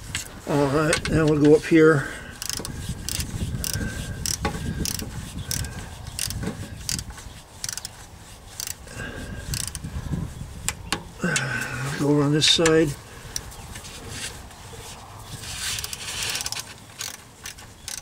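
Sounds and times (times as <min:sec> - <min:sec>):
hand ratchet clicking: 0:02.4 - 0:08.0, 0:08.6 - 0:08.8, 0:09.5 - 0:09.8, 0:15.7 - 0:18.0.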